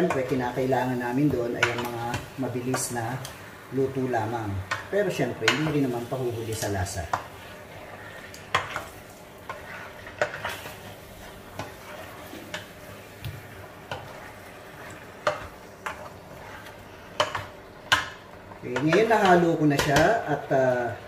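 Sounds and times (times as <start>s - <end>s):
faint frying sizzle: 0.0s - 21.0s
spatula scraping steel pot: 5.4s - 18.0s.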